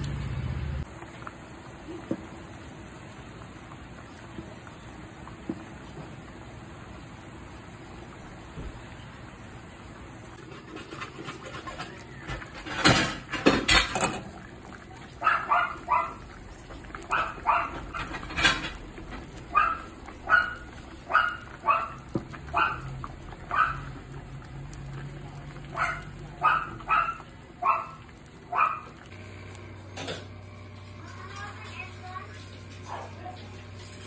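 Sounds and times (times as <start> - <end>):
dog barking: 15.1 - 16.3, 17.0 - 18.2, 19.5 - 22.9, 23.5 - 23.9, 25.7 - 29.0, 32.8 - 33.4.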